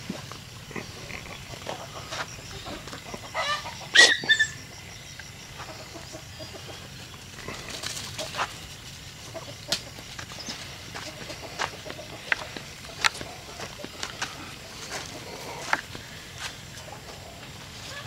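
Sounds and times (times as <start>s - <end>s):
chicken clucking: 0.6s - 18.0s
chicken squawk: 1.3s - 4.7s
rustling in dry leaves: 6.5s - 18.0s.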